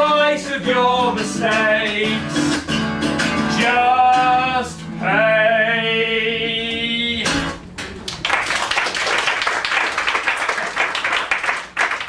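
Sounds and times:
audience applauding: 8.0s - 12.0s.

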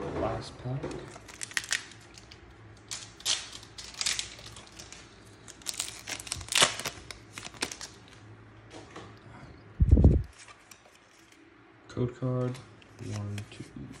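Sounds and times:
foil wrapper tearing and crinkling: 1.1s - 8.2s.

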